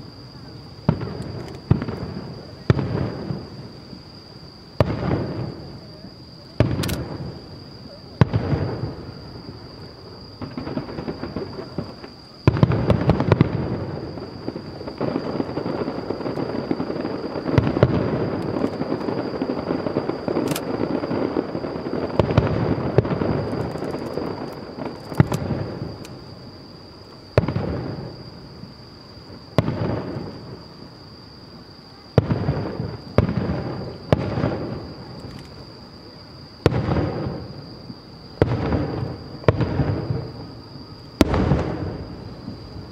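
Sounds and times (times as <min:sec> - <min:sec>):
firework shells bursting: 0:14.5 - 0:21.5, 0:22.1 - 0:26.2.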